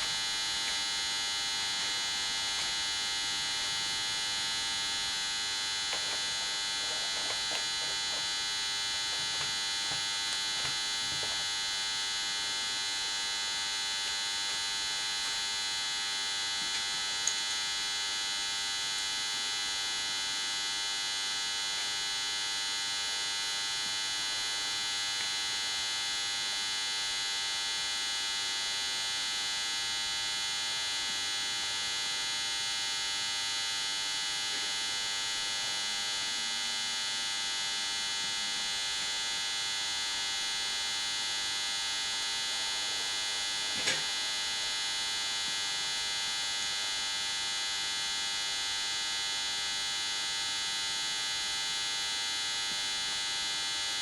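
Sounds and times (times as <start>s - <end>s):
electrical hum with high whine: 0.0s - 54.0s.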